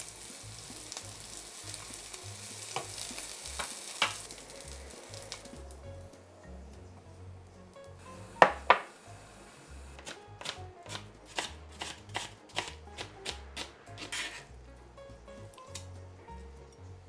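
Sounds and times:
knife chopping on plastic board: 10.0s - 14.4s.

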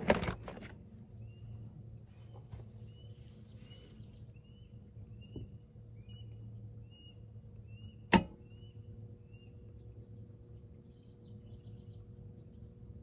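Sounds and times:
low hum: 0.0s - 13.0s
small birds chirping: 0.2s - 13.0s
electrical disconnect clunk: 8.1s - 8.4s.

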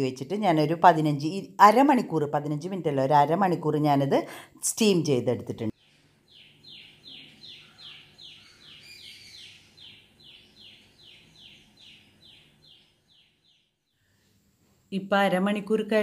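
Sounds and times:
bird chirping: 5.7s - 14.4s.

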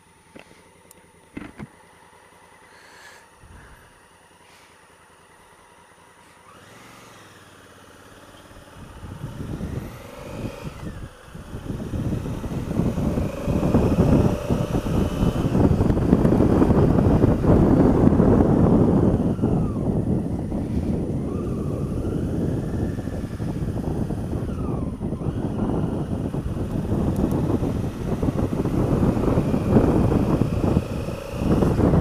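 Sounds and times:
motorcycle engine: 0.0s - 32.0s
wind on microphone: 8.8s - 32.0s.

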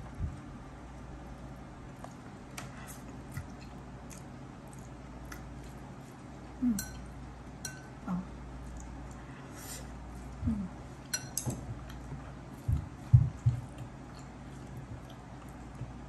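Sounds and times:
low hums: 0.0s - 16.0s
person chewing noodles: 2.8s - 6.2s, 11.0s - 16.0s.

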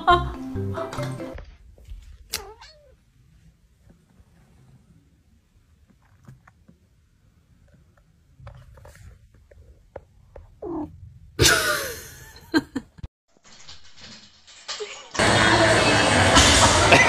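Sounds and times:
cat meowing: 2.3s - 3.0s, 10.6s - 10.9s
cat yowling: 2.3s - 3.0s
cat purring: 8.6s - 11.4s.

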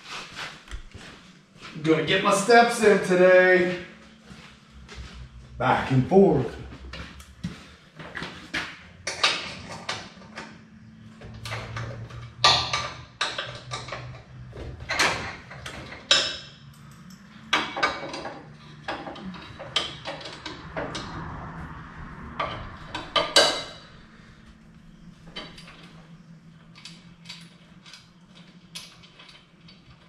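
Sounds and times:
low hum: 0.6s - 30.0s
metal clanks and knocks: 6.8s - 21.6s, 22.2s - 24.0s.

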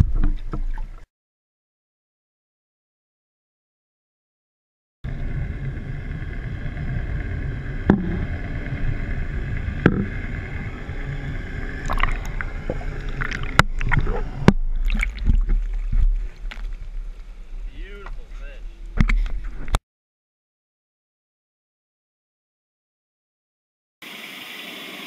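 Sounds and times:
faint whine: 5.1s - 19.8s
low underwater rumble: 5.1s - 19.8s
fish splashing and bubbling: 5.8s - 17.6s.

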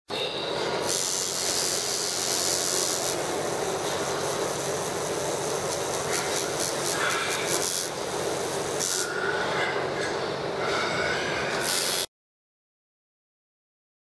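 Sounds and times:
tattoo machine buzzing: 0.1s - 9.2s, 11.5s - 12.1s.

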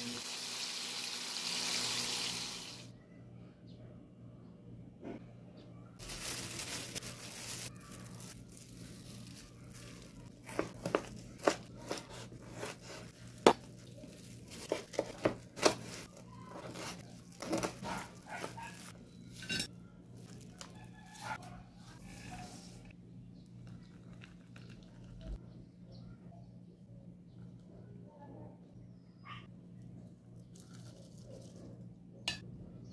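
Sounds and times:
crinkly rustle: 6.0s - 19.0s, 20.1s - 21.3s.

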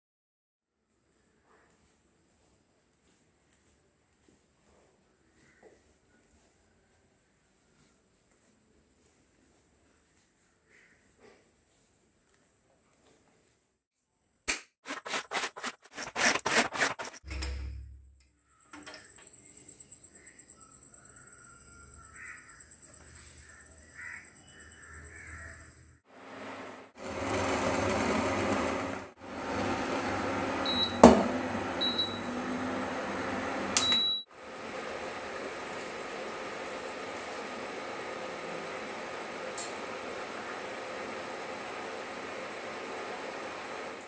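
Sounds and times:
induction cooktop hissing: 26.1s - 44.0s
cooktop beeping: 29.4s - 34.3s.

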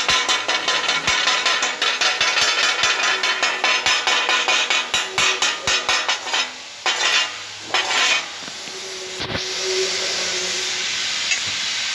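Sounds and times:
hand tool scraping steel weld: 0.0s - 9.5s
steady hiss: 0.0s - 11.9s.

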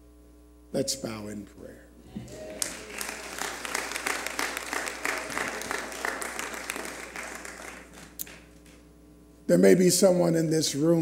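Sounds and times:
crowd applauding: 2.1s - 8.8s.

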